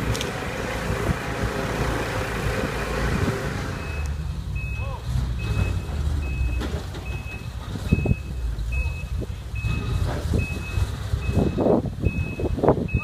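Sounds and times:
truck engine rumble: 0.0 - 13.0
truck backup alarm beeping: 3.7 - 13.0.

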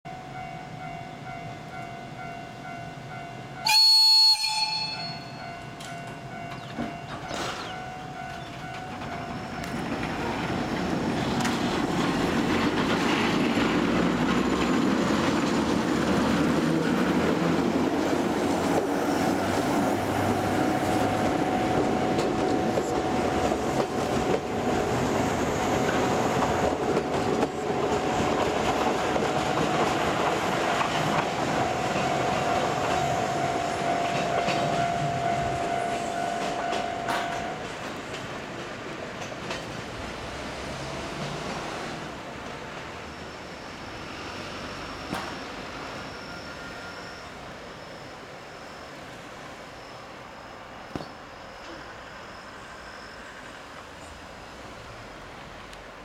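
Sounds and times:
train rolling with wheel clatter: 0.4 - 56.0
locomotive horn blast: 3.6 - 5.3.

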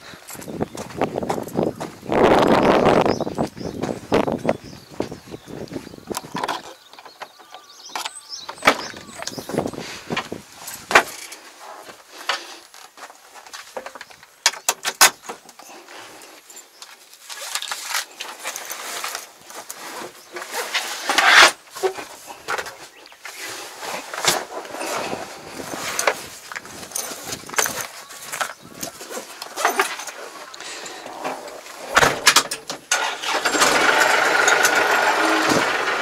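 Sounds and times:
small items clinking: 15.6 - 22.6, 24.0 - 35.4.

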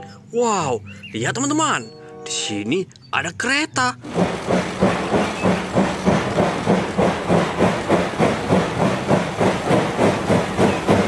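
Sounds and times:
steam locomotive chuffing: 4.0 - 11.0
steam hissing: 4.1 - 11.0.

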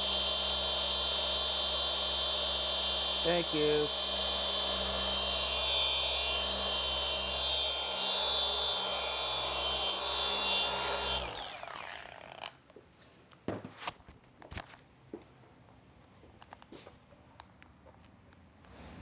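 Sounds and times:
polisher motor hum: 0.0 - 12.5.

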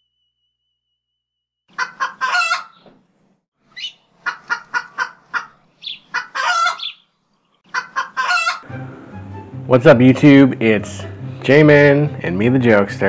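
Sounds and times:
chicken squawk: 1.7 - 2.8, 3.7 - 7.0, 7.7 - 8.6
chicken clucking: 1.7 - 2.9, 3.8 - 7.0, 7.6 - 8.6.

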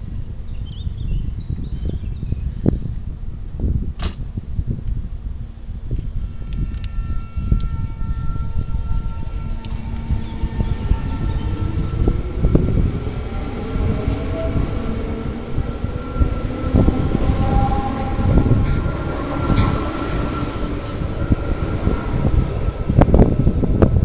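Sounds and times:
train wheels rumbling on rail: 1.5 - 24.0
electric motor whine: 5.7 - 23.8.

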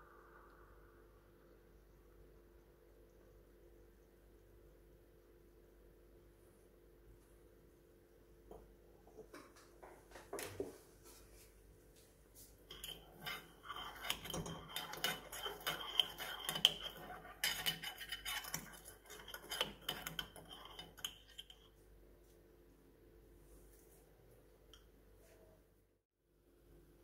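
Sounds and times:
spoon stirring in metal pot: 12.6 - 21.8.

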